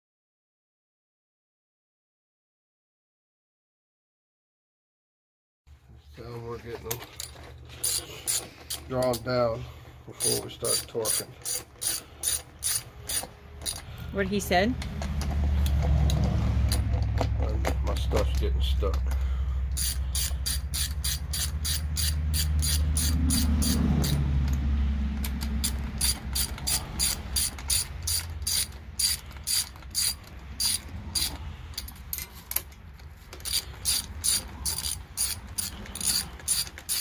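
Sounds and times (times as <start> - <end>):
socket ratchet clicking: 10.2 - 13.9, 19.7 - 32.8, 33.4 - 37.0
low rumble: 18.4 - 29.4.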